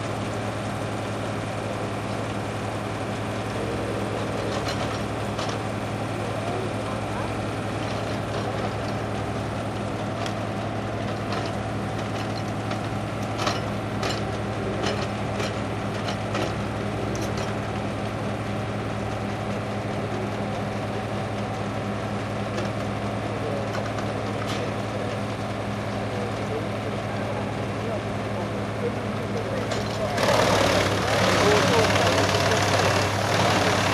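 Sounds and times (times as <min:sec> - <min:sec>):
diesel engine running: 0:00.0 - 0:33.9.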